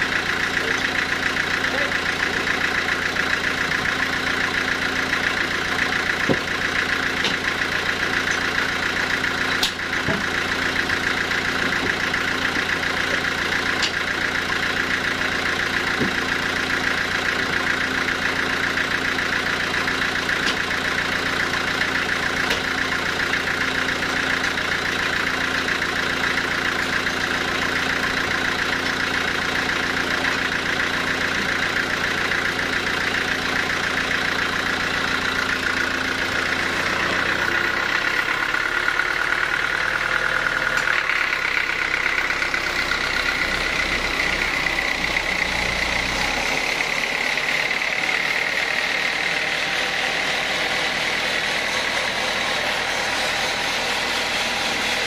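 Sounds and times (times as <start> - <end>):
band sawmill humming: 0.0 - 55.0
heavy log knocking: 6.2 - 6.6.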